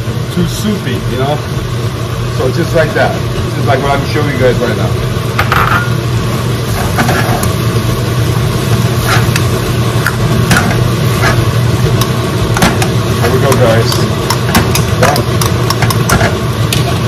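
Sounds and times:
low mechanical hum: 0.0 - 17.0
metal ladle scraping a wok: 9.0 - 9.4.

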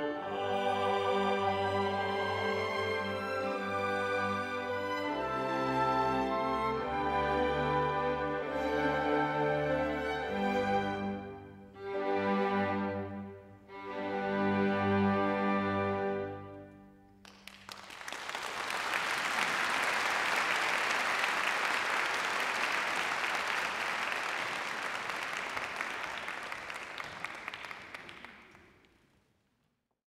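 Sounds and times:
audience applauding: 17.2 - 29.0.

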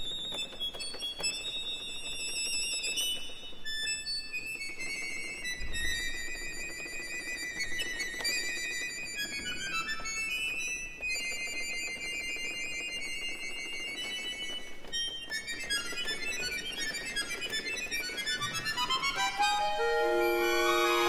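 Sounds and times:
instrumental music: 18.0 - 21.0.

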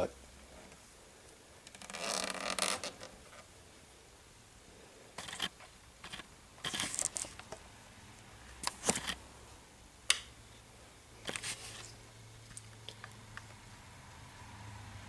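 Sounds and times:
handling clicks and rustles: 5.2 - 7.6, 8.6 - 9.2.

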